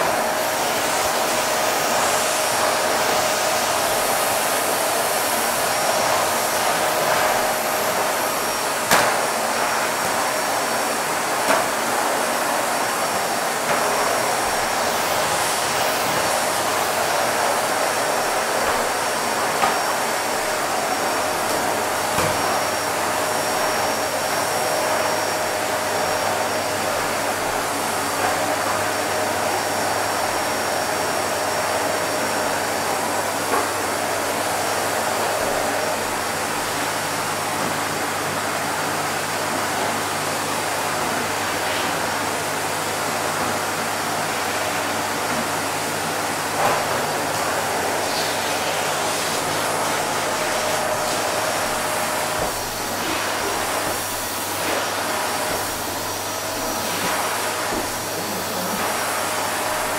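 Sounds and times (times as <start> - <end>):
vacuum cleaner running: 0.0 - 59.9.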